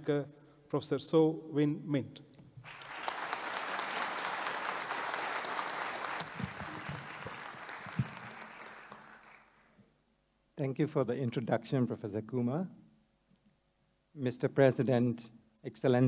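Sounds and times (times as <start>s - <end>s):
audience applauding: 2.7s - 9.7s.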